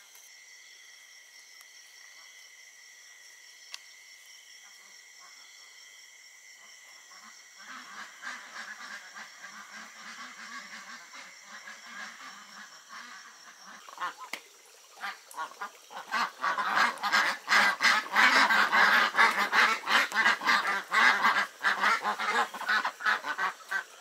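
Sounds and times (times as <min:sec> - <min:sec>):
night insects chirring: 0:00.0 - 0:24.0
ducks quacking: 0:07.2 - 0:24.0.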